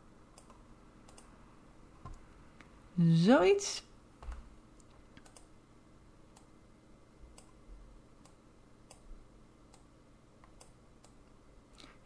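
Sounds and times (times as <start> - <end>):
computer mouse clicks: 0.3 - 1.4, 4.2 - 5.5, 7.3 - 7.6, 8.2 - 9.1, 9.7 - 11.9.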